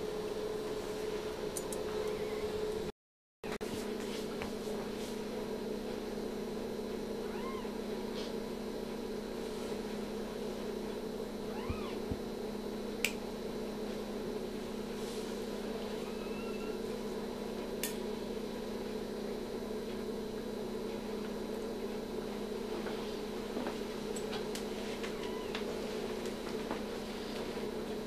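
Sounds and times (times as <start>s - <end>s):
low equipment hum: 0.0s - 2.9s, 3.5s - 28.0s.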